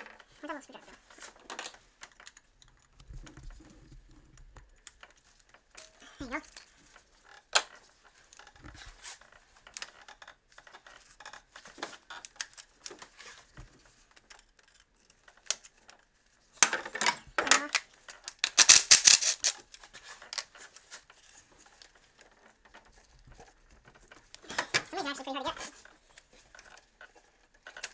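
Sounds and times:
tools and plastic clips clicking: 0:14.1 - 0:20.9.

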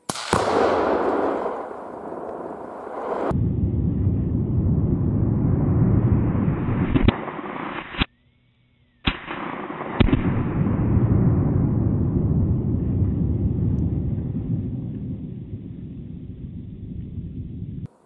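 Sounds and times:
sharp cracks: 0:00.0 - 0:03.4, 0:06.6 - 0:08.1, 0:09.0 - 0:11.2
explosion rumbling boom: 0:00.2 - 0:07.6, 0:09.1 - 0:17.9.

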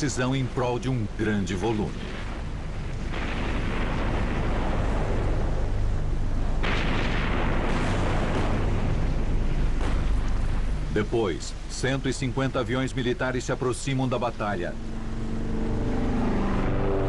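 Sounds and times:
ship's gunfire and shell bursts: 0:06.6 - 0:10.5.

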